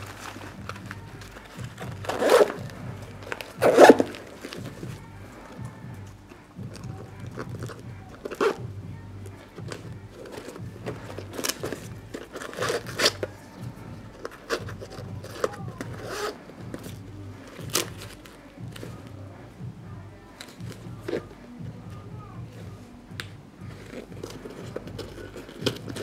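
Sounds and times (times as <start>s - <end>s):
nylon strap rustling through webbing: 0.0s - 5.7s.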